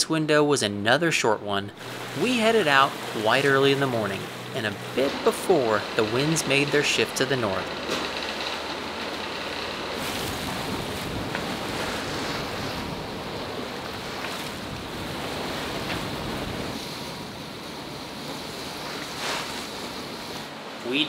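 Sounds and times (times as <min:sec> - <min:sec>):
sea water rushing: 0:01.7 - 0:21.0
water splashes: 0:01.8 - 0:21.0
wind buffeting microphone: 0:07.7 - 0:20.5.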